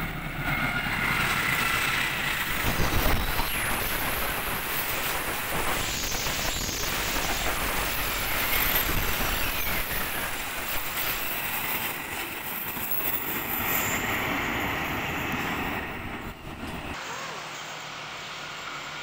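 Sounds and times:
train wheels rumbling and clattering: 0.0s - 17.0s
thin high wheel squeals: 5.8s - 14.2s.

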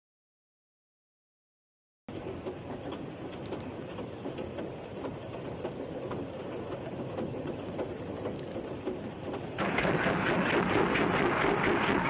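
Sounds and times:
wheels clicking over rail joints: 2.1s - 9.8s
train rumbling: 2.1s - 12.0s.

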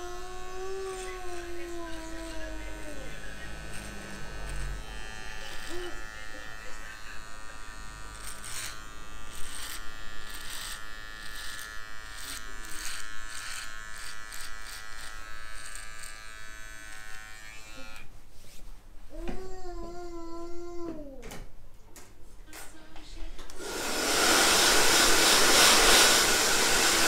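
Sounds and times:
hair trimmer buzzing: 0.0s - 18.1s, 23.6s - 27.0s
trimmer cutting hair crackle: 0.0s - 18.1s, 23.5s - 27.0s.

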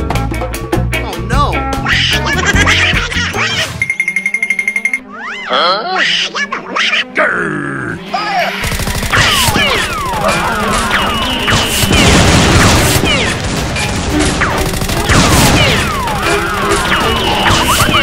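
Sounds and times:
background music: 0.0s - 18.0s
gunfire-like shots: 8.6s - 18.0s
crashes and impacts: 11.4s - 16.1s.

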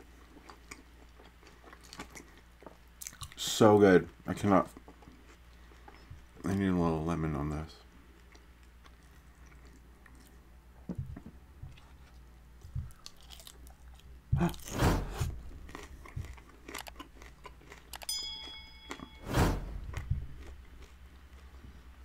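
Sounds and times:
crunching taco bite: 0.0s - 3.5s, 12.9s - 14.5s, 15.3s - 18.1s
quiet chewing: 0.0s - 6.6s, 7.8s - 10.8s, 11.6s - 19.1s, 19.9s - 22.0s.

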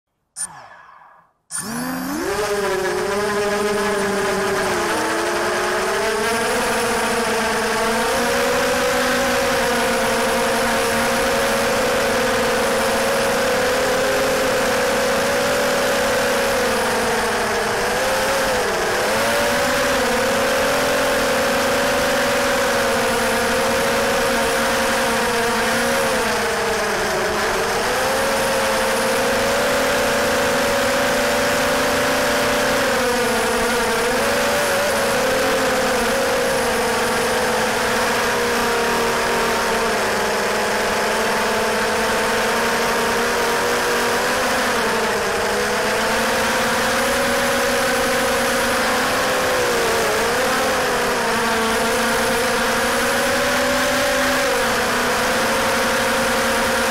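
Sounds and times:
quadcopter motors buzzing whine: 0.4s - 56.9s.

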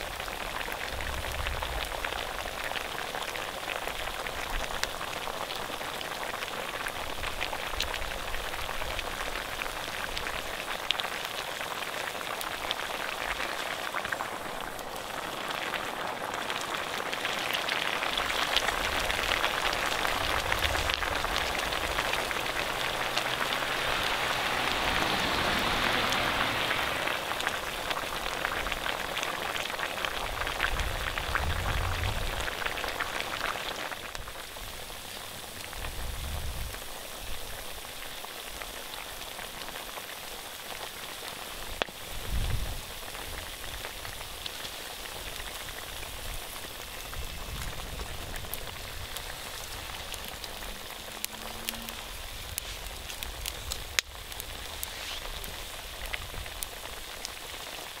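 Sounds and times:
pork sizzling and crackling: 0.0s - 58.0s.

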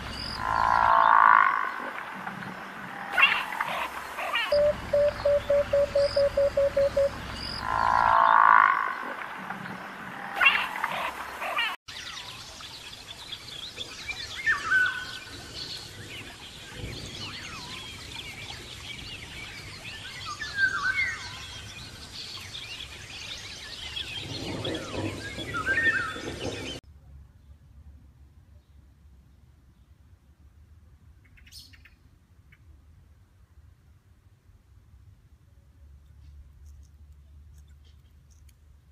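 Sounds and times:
songbirds calling and chirping: 0.0s - 27.7s, 31.1s - 32.8s, 36.0s - 38.9s
forest background: 0.0s - 38.9s
whistled bird calls: 4.5s - 7.7s.

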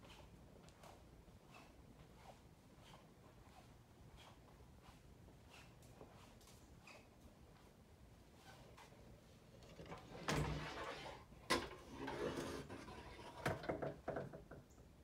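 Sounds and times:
small knocks and rattles: 9.6s - 14.9s.

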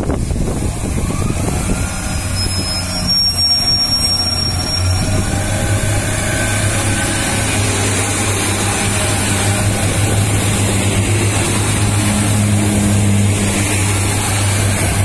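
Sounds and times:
train diesel engine pulling away: 0.0s - 15.0s
thin high whistle: 2.3s - 5.4s.

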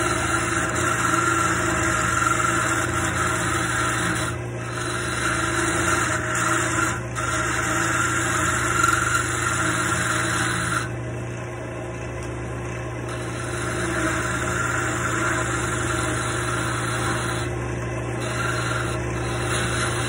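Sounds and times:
chisel cutting spinning wood: 0.0s - 20.0s
wood lathe motor hum: 0.0s - 20.0s.

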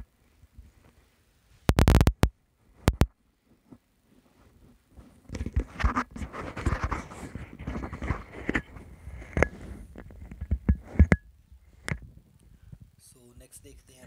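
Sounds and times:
scratchy rustling with clicks: 1.7s - 11.2s.

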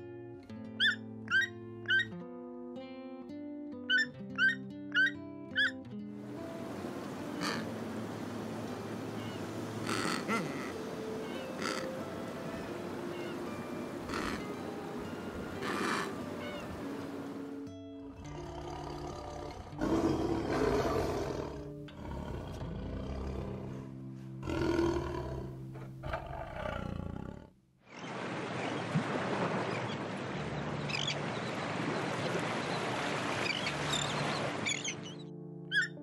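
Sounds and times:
background music: 0.0s - 27.1s
gulls calling: 6.4s - 17.6s, 29.7s - 36.0s
tiger growling and roaring: 18.2s - 27.6s.

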